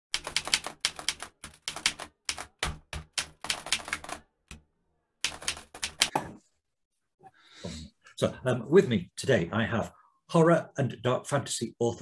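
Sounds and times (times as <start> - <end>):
typewriter keys striking: 0.2 - 4.2, 5.2 - 6.1.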